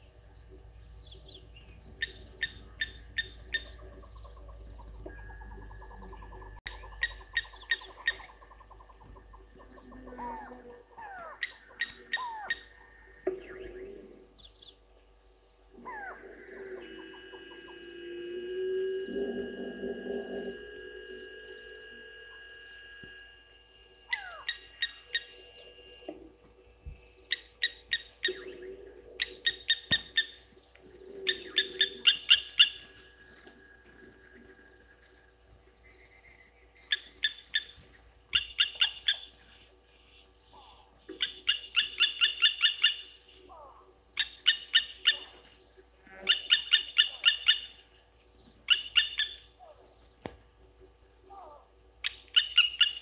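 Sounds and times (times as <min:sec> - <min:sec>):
high insect whine: 0:00.0 - 0:53.0
lapwing calling sharp notes: 0:01.6 - 0:08.4, 0:15.7 - 0:26.2, 0:27.2 - 0:35.1, 0:36.9 - 0:39.6.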